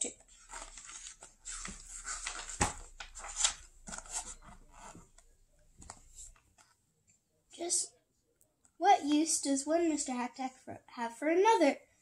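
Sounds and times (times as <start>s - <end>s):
paper page rustling: 0.3s - 5.1s
page flapping: 0.4s - 5.0s.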